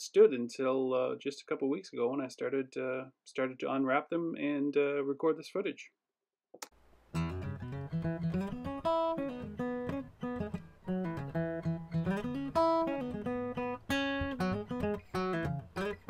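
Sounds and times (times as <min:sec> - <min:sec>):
acoustic guitar music: 0:07.1 - 0:16.0.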